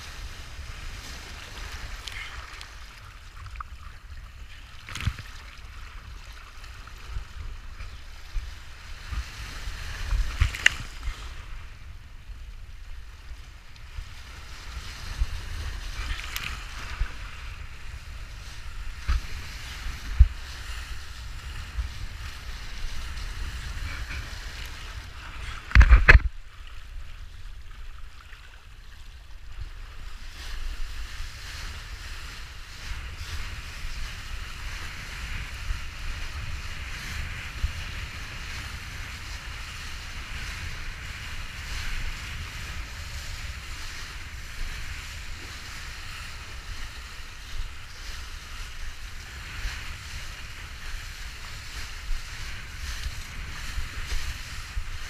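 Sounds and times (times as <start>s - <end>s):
water rushing and spray hissing: 0.0s - 27.3s
low wind rumble: 0.0s - 28.2s, 28.8s - 55.0s.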